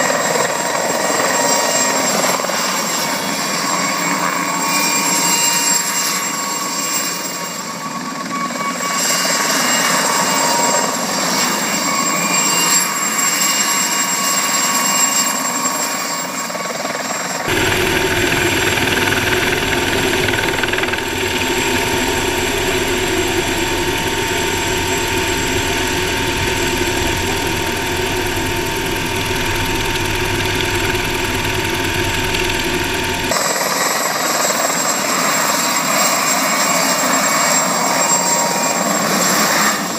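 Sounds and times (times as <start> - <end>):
helicopter engine and rotor: 0.0 - 39.9
low engine drone in cockpit: 17.5 - 33.4.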